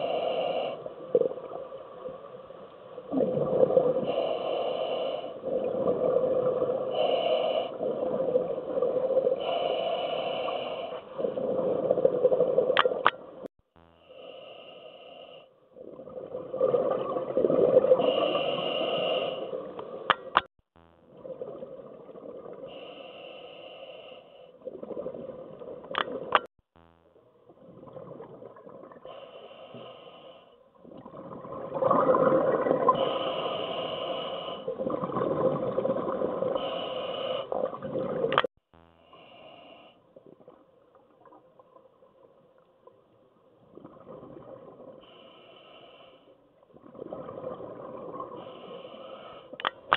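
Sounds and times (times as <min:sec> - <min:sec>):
scuba breathing underwater: 0:00.0 - 0:01.6, 0:03.1 - 0:20.4, 0:22.4 - 0:25.7, 0:28.9 - 0:40.2, 0:44.4 - 0:49.9.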